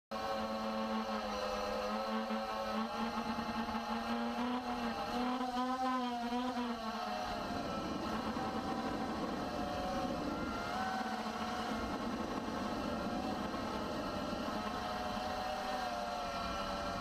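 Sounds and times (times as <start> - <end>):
model plane motor whine: 0.1 - 17.0
wind buffeting microphone: 6.7 - 17.0.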